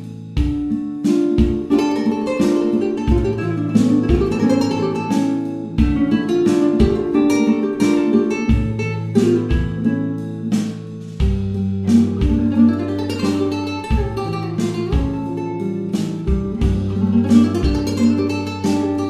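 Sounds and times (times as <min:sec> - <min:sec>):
plucked guitar music: 0:00.0 - 0:19.0
sustained bass notes: 0:11.0 - 0:18.9.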